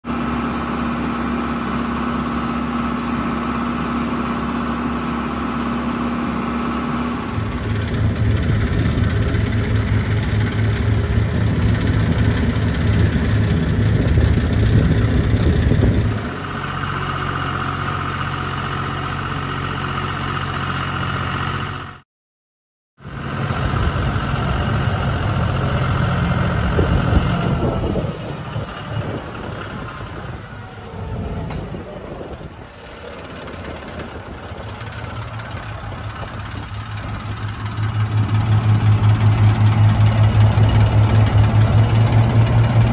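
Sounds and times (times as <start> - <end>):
grape harvester engine: 0.0 - 22.0, 23.0 - 42.9
tractor engine running: 0.0 - 22.0, 23.0 - 42.9.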